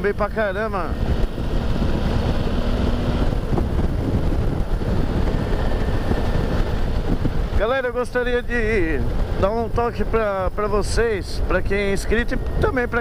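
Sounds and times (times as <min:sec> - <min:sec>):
motorcycle engine running: 0:00.0 - 0:07.7
wind rush on microphone: 0:00.0 - 0:13.0.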